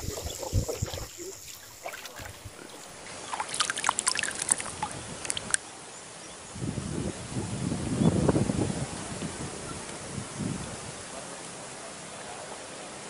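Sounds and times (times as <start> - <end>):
shallow water sloshing: 0.0 - 5.6
small splashes and drips: 0.0 - 5.6.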